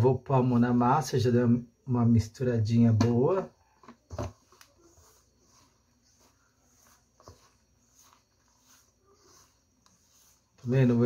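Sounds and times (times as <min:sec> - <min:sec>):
hand rubbing flour in bowl: 0:04.3 - 0:11.0.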